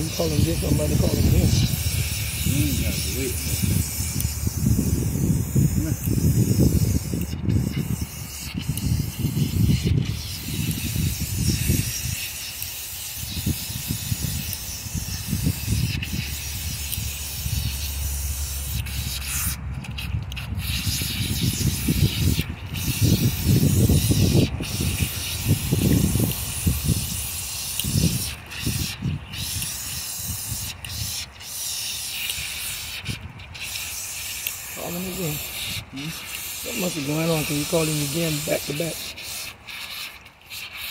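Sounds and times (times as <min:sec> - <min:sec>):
water hissing from garden hose: 0:00.0 - 0:40.9
hands scrubbing wet dog coat: 0:36.7 - 0:40.2.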